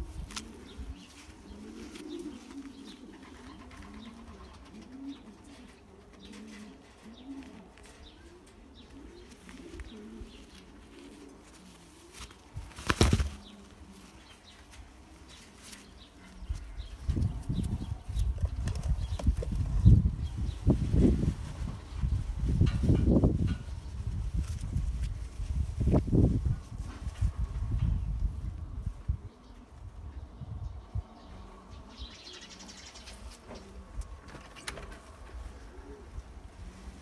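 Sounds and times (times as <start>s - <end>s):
wings fluttering: 0.0s - 8.0s, 9.0s - 20.0s
pigeons cooing: 0.0s - 20.6s, 28.6s - 37.0s.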